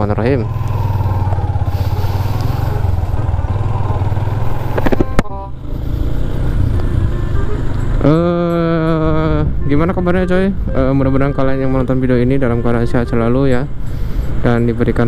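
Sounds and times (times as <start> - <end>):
motorcycle engine running: 0.0 - 9.4.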